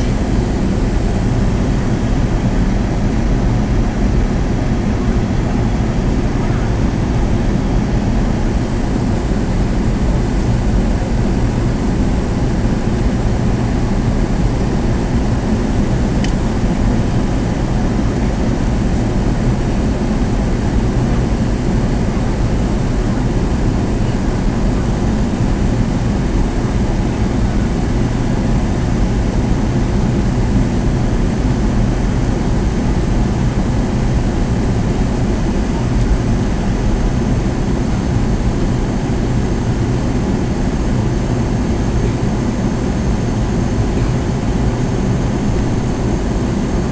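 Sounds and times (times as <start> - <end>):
faint high whine: 0.0 - 10.2
airplane cabin roar: 0.0 - 46.9.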